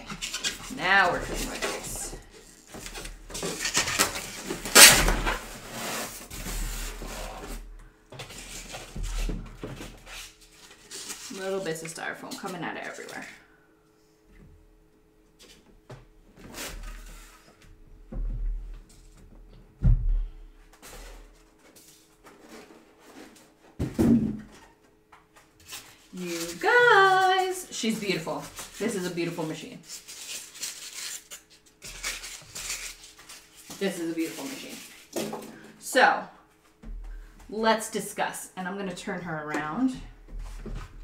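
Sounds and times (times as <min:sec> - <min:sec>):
styrofoam scraping against cardboard: 0:00.0 - 0:07.6, 0:25.7 - 0:35.2
heavy thump: 0:19.8 - 0:20.4.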